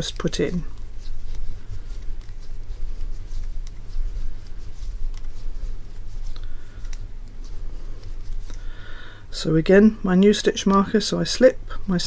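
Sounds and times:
steady low hum: 0.0s - 12.0s
wooden knitting needles clicking: 5.0s - 5.4s.

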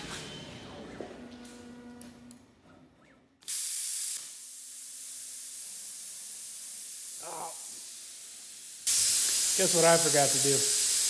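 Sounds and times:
plasma torch air hiss: 3.4s - 11.0s.

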